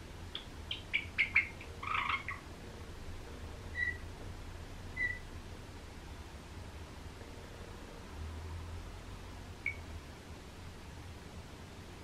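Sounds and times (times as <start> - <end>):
sparrow chirping: 0.3 - 2.4, 3.7 - 4.0, 5.0 - 5.2.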